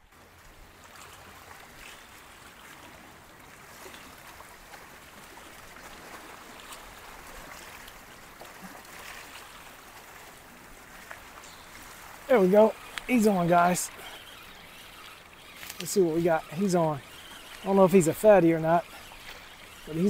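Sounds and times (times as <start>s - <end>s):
faint small splashes: 0.8s - 20.0s
seawater washing against rocks: 6.0s - 20.0s.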